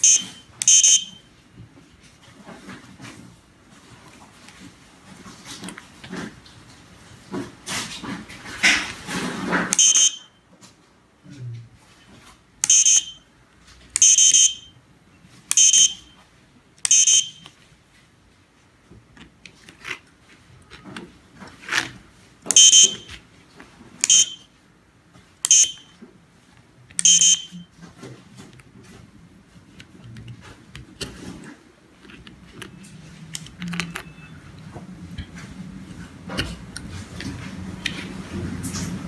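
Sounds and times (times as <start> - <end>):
piezo buzzer short high beeps: 0.0 - 1.2, 9.8 - 10.3, 12.6 - 13.2, 14.0 - 14.7, 15.5 - 16.1, 16.9 - 17.4, 22.6 - 23.1, 24.0 - 24.4, 25.5 - 25.9, 27.0 - 27.6.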